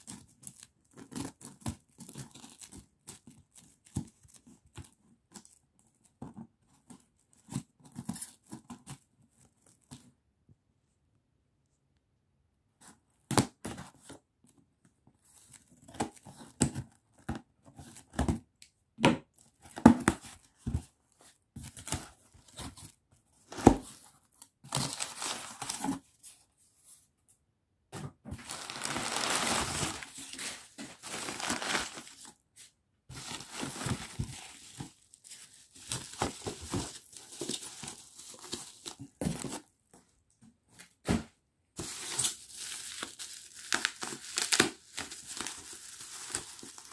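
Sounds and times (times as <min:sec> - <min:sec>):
crumpled newspaper rustling: 0:24.7 - 0:26.0, 0:28.4 - 0:39.6, 0:41.8 - 0:46.9.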